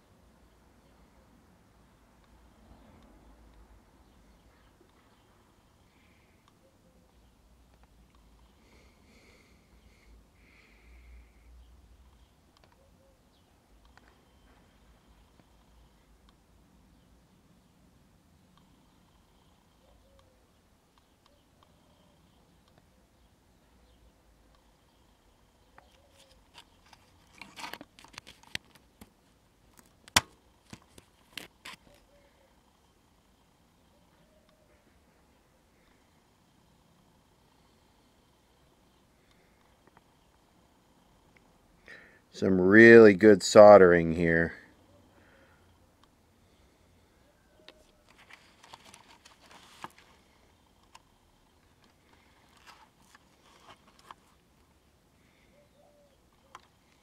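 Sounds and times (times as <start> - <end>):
radio parts being handled: 25.8 - 32.1, 47.7 - 51.0, 51.6 - 54.6.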